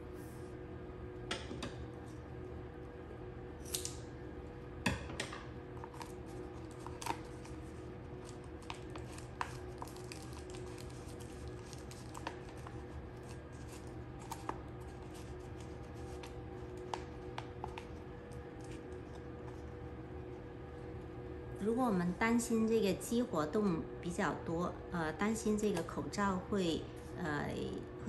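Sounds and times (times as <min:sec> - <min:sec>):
faint steady hum: 0:00.0 - 0:28.0
paper rustling: 0:05.9 - 0:16.9.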